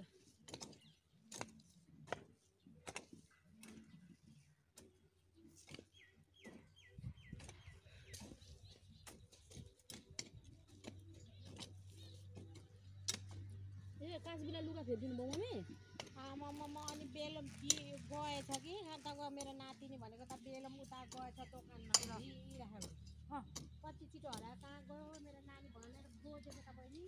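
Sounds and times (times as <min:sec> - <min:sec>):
hand hoes chopping into soil: 0:00.1 - 0:04.1, 0:04.7 - 0:13.7, 0:15.2 - 0:27.0
bird chirping: 0:05.3 - 0:14.6.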